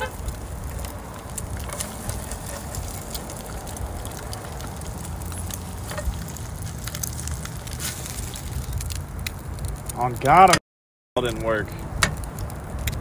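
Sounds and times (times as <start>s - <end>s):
food sizzling in a skillet: 0.0s - 8.8s.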